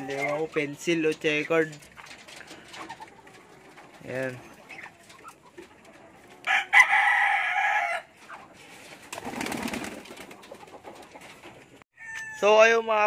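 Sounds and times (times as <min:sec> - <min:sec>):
rooster crowing: 0:06.4 - 0:08.1, 0:12.0 - 0:12.4
pigeon wings flapping: 0:08.8 - 0:11.0.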